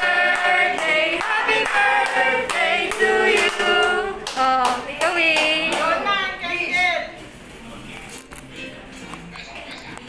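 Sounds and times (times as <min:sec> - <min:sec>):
group singing: 0:00.0 - 0:04.6.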